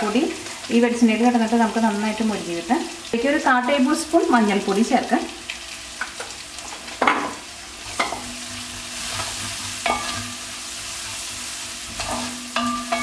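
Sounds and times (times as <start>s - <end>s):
garlic sizzling in hot oil: 0.0s - 13.0s
spatula knocking and scraping pot: 9.2s - 10.4s, 12.0s - 13.0s.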